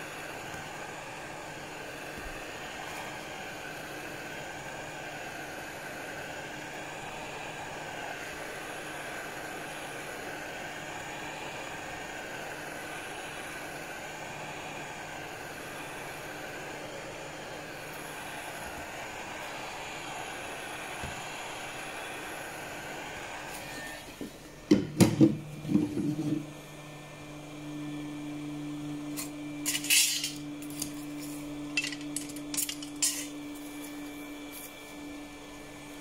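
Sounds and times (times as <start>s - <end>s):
metal tools clinking on workbench: 29.7s - 31.0s, 31.8s - 33.4s.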